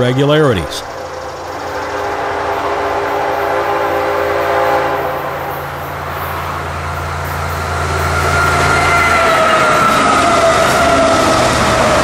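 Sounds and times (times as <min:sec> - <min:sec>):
low engine drone: 0:00.0 - 0:03.6
freight train rumbling past: 0:00.0 - 0:12.0
train horn chord: 0:01.9 - 0:05.6, 0:07.7 - 0:12.0.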